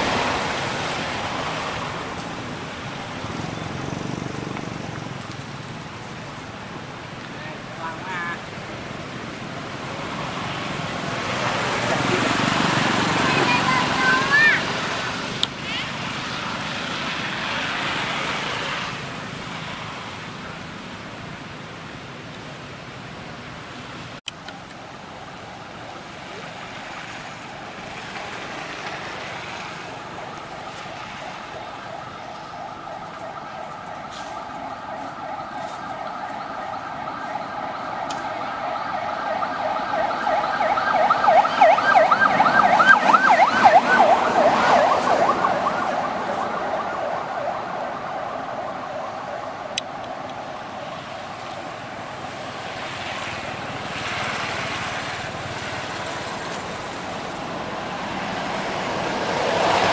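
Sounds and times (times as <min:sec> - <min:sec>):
wavering siren-like tone: 0:29.8 - 0:51.9.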